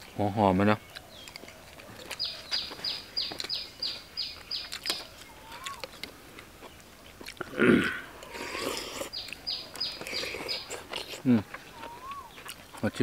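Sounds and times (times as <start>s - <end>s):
bird calling high falling notes: 11.8s - 12.4s.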